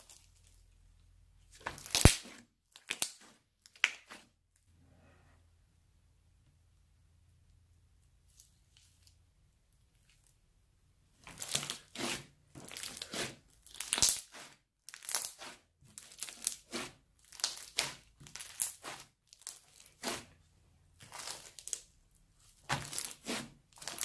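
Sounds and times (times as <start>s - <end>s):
crunchy slime squeezed by hand: 12.7s - 20.2s.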